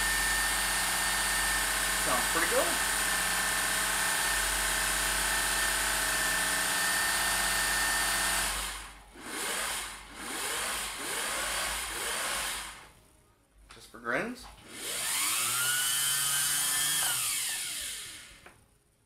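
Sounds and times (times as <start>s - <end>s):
sewing machine running: 0.0s - 12.8s.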